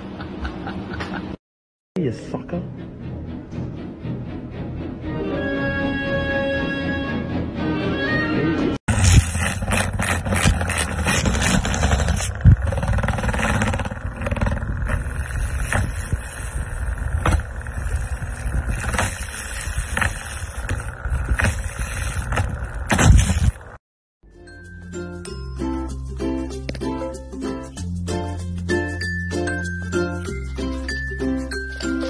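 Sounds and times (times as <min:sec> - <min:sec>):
desk fan blades buzzing: 0:08.9 - 0:23.8.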